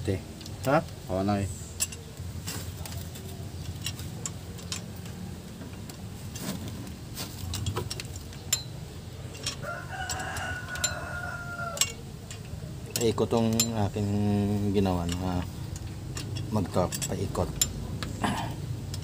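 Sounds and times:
wrench clicking on metal: 0:00.4 - 0:06.1, 0:07.4 - 0:19.0
rooster crowing: 0:09.6 - 0:12.0.

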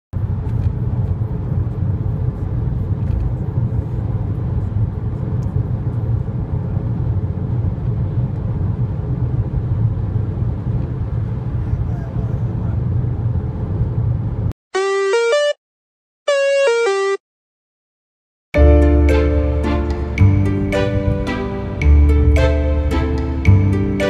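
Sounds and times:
car cabin road rumble: 0:00.2 - 0:14.5.

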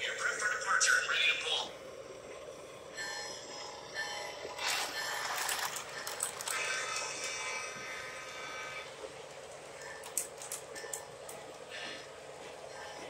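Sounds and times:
model train running: 0:03.0 - 0:10.2.

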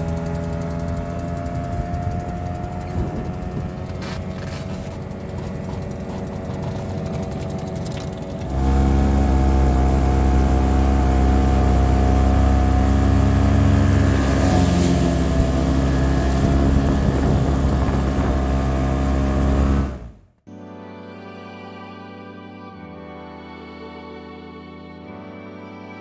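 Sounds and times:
loud outboard motor at speed: 0:00.0 - 0:20.2
distant outboard motor running: 0:00.0 - 0:20.4.

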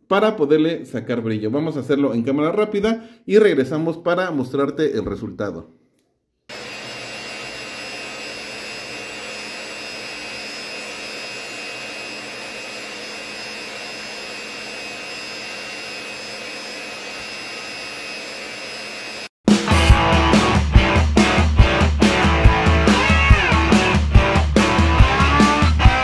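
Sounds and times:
polisher motor whirring: 0:06.5 - 0:19.4.

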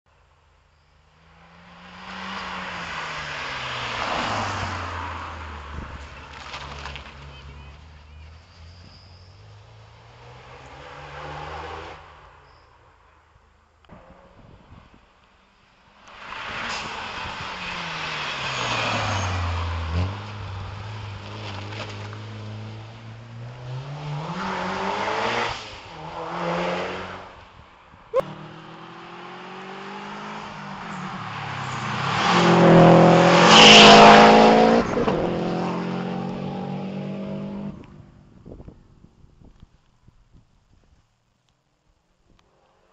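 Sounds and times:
rally car engine passing: 0:01.2 - 0:12.3, 0:16.2 - 0:27.4, 0:28.2 - 0:38.2.

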